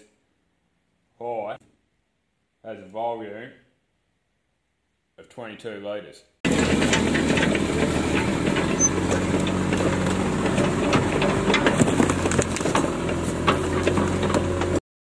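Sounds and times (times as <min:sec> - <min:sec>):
excavator engine running: 0:06.5 - 0:14.8
steel tracks clanking: 0:06.5 - 0:14.8.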